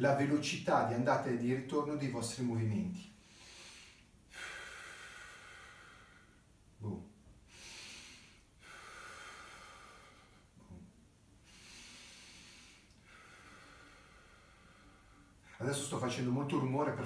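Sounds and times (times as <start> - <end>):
man breathing loudly: 3.2 - 6.5, 7.5 - 10.6, 11.4 - 15.5.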